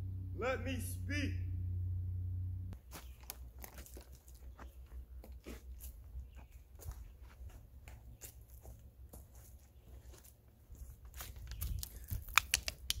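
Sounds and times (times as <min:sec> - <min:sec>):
low rumble: 0:00.0 - 0:02.8
footsteps crunching through undergrowth: 0:02.8 - 0:12.3.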